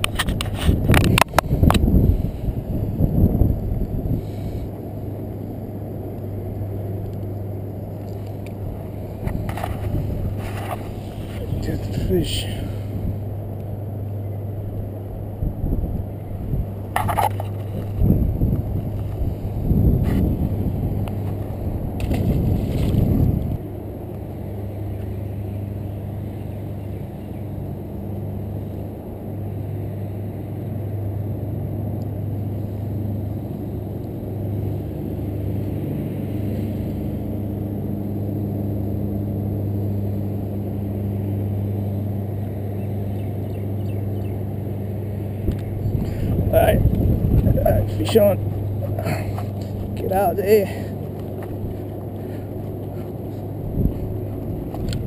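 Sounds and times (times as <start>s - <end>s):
low engine hum: 0.0s - 55.0s
loud uneven rumbling: 45.1s - 55.0s.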